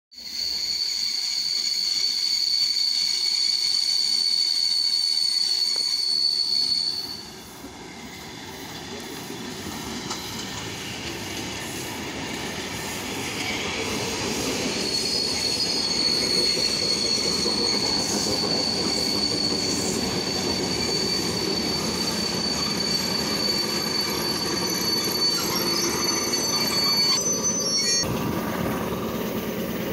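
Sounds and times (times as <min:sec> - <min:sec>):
train high-pitched squeal: 0:00.1 - 0:29.9
wheels clattering on rails: 0:09.0 - 0:11.8.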